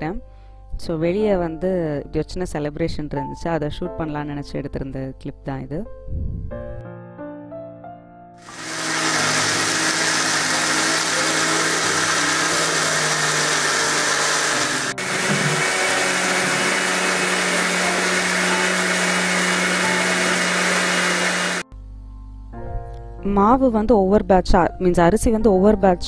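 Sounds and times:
mixer grinder running: 8.4s - 21.6s.

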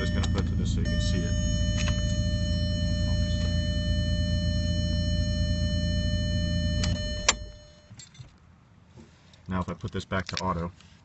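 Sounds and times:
engine running down: 0.0s - 7.0s
car engine idling: 0.0s - 7.8s
thin steady whine: 0.0s - 8.1s
ignition switch click: 6.7s - 7.5s.

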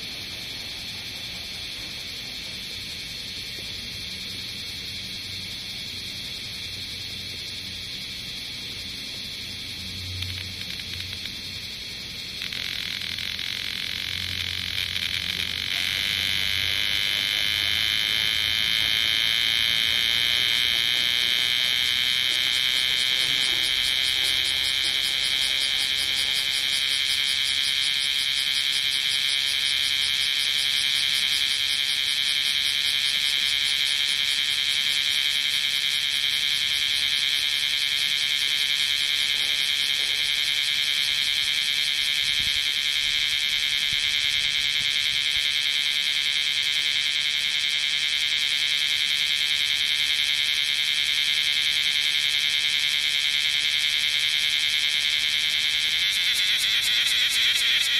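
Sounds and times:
cicada buzzing: 0.0s - 57.9s.

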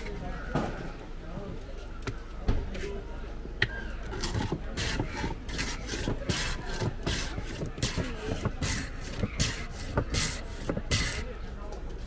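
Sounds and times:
ice shaver rasping scrape: 4.1s - 11.3s.

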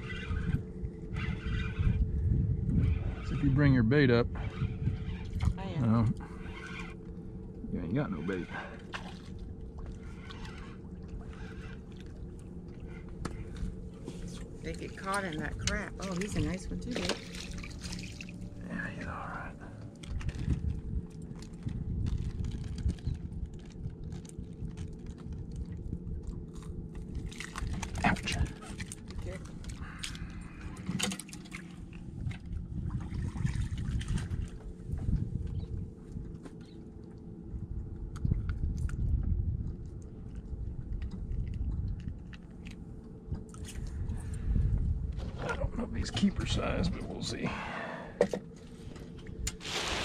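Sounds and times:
low rumble: 0.0s - 50.0s
small clicks and crackles: 19.8s - 30.3s.

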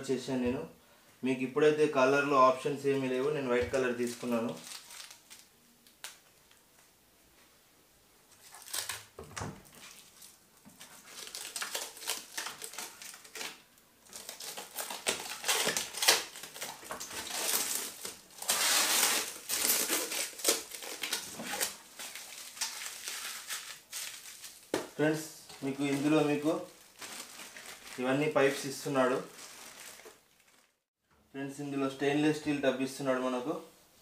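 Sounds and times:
plastic film crinkling and tearing: 4.0s - 6.6s, 8.4s - 24.8s, 25.6s - 30.9s.

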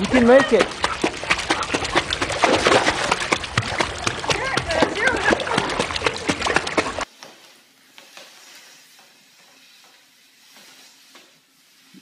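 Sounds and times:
water splashing: 0.0s - 7.1s
umbrella scraping across tile floor: 7.0s - 12.0s.

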